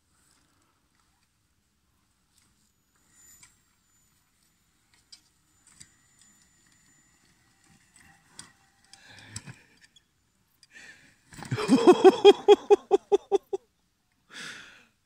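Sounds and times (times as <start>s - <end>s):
soft rustle: 0.0s - 5.8s.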